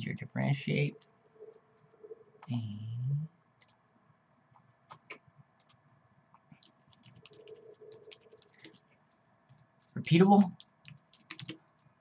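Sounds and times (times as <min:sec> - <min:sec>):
computer mouse clicks: 0:04.6 - 0:05.8, 0:06.4 - 0:11.9
keyboard keystrokes: 0:06.6 - 0:08.8, 0:09.5 - 0:11.8.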